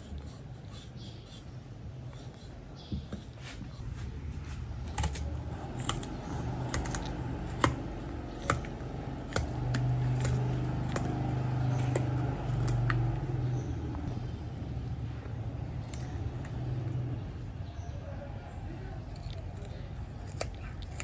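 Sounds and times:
low steady hum: 0.0 - 21.0
shears snipping fish skin: 4.8 - 13.2.

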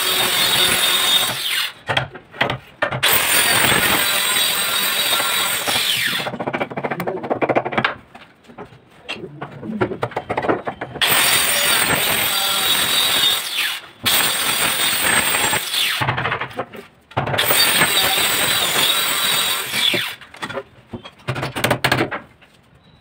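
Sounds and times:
chisel knocking and scraping wood: 5.8 - 11.0.

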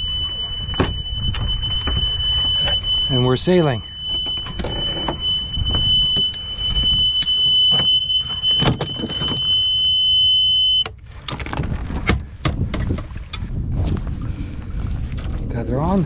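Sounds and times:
alarm buzzer high tone: 0.0 - 10.8.

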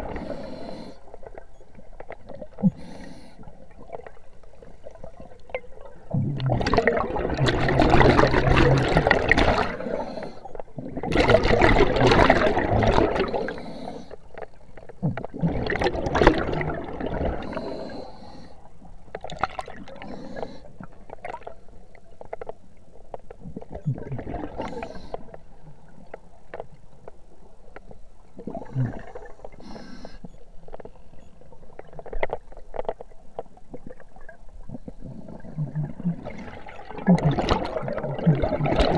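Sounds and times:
underwater exhaled air bubbling: 0.0 - 14.2, 14.8 - 21.6, 23.5 - 26.1, 28.2 - 30.2, 33.6 - 38.9.

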